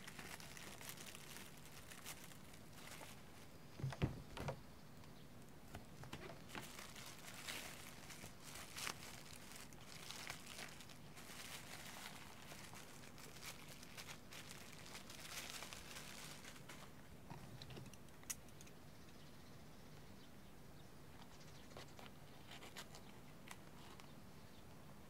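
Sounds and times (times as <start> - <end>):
plastic wrap crinkling: 0.0 - 3.6, 6.0 - 17.0.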